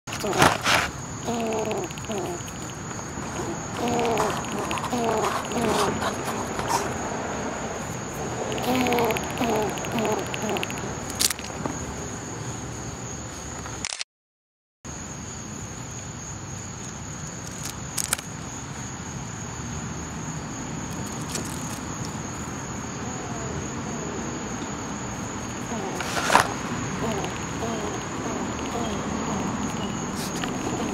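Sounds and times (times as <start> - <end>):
insects trilling: 0.1 - 13.8, 14.9 - 30.9
squirrel chattering teeth: 1.2 - 6.2, 8.2 - 11.4, 25.7 - 30.9.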